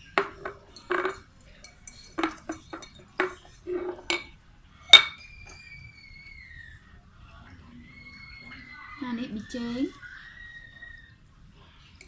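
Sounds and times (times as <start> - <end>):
metal clinks on saucepan: 0.2 - 5.6.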